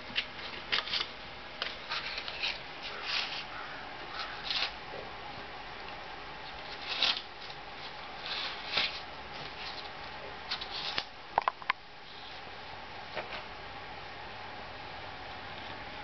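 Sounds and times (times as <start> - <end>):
puppy tearing toilet paper: 6.6 - 9.8.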